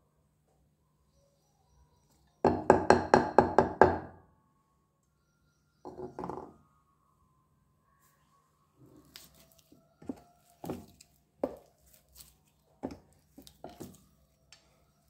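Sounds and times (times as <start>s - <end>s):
clay knocking on slate: 10.0s - 11.7s.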